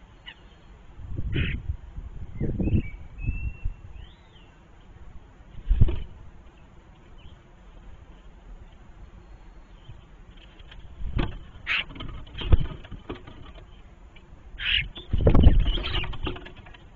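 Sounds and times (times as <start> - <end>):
short raspy bird calls: 1.3 - 1.6, 14.6 - 15.1
bird wings flapping and thumping: 10.5 - 13.7, 15.2 - 16.9.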